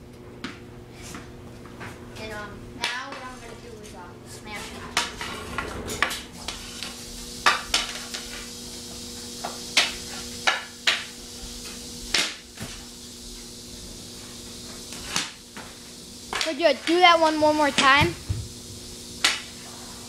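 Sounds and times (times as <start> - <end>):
hockey stick striking balls: 12.1 - 12.8.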